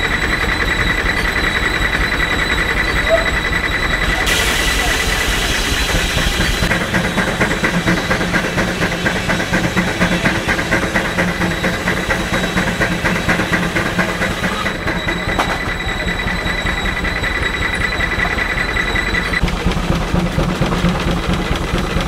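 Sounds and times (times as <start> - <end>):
steam engine exhaust chuffs: 0.0 - 22.0
hiss of escaping steam: 4.2 - 6.7.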